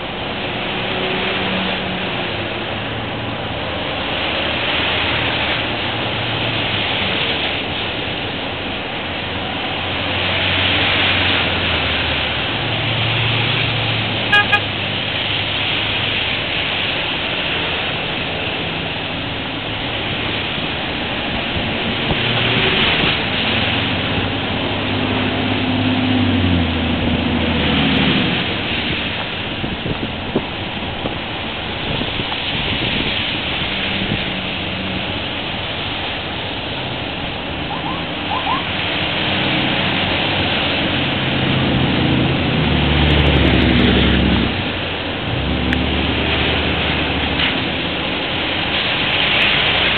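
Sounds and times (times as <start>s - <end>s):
low engine hum: 0.0s - 49.9s
tyres hissing on wet road: 0.0s - 49.9s
car horn beeps: 14.3s - 14.7s.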